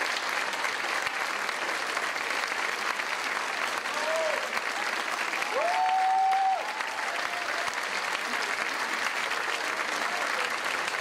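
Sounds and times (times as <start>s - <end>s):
audience applauding: 0.0s - 11.0s
person cheering: 3.9s - 4.5s, 5.5s - 7.7s.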